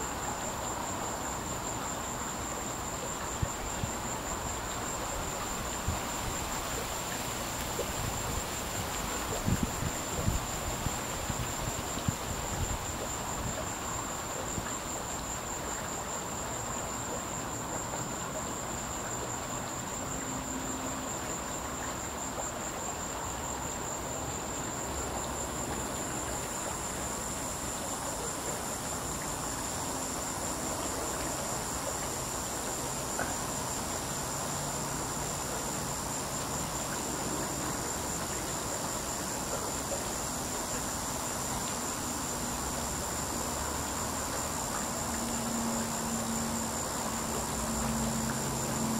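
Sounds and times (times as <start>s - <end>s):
faint high hiss: 0.0s - 48.9s
cicada buzzing: 24.6s - 48.9s.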